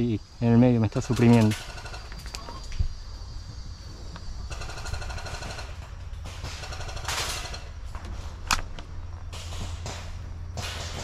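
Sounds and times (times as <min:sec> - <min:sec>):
full-auto airsoft gunfire: 0:04.5 - 0:07.6
sharp airsoft shot: 0:09.3 - 0:11.0.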